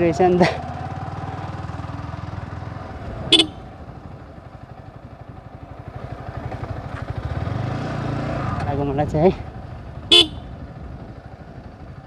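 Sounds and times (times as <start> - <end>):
motorcycle engine throb: 0.0 - 12.0
short horn beep: 3.3 - 3.6, 10.1 - 10.4.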